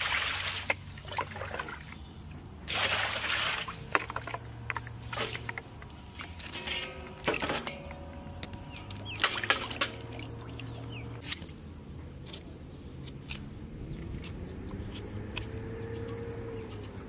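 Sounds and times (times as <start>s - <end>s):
water splashing in steel basin: 0.0s - 2.0s, 2.6s - 7.9s, 9.1s - 11.0s.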